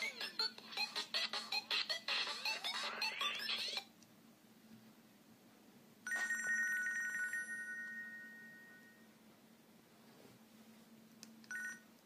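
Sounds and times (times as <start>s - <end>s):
phone ringtone melodies: 0.0s - 3.8s.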